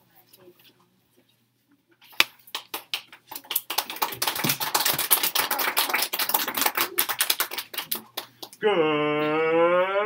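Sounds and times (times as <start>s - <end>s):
children clapping: 2.5s - 8.6s.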